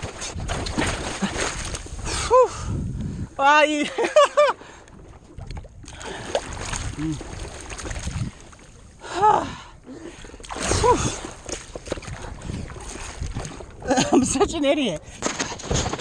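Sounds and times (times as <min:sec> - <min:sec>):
water splashing against paddleboard: 0:00.0 - 0:02.3, 0:04.8 - 0:08.9, 0:10.1 - 0:16.0.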